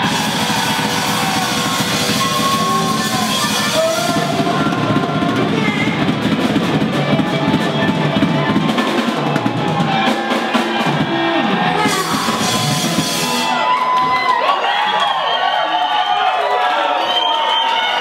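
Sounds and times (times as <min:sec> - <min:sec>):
drum kit hits: 0:00.0 - 0:13.6
live band playing heavy music: 0:00.0 - 0:15.0
crowd shouting and cheering: 0:00.0 - 0:18.0.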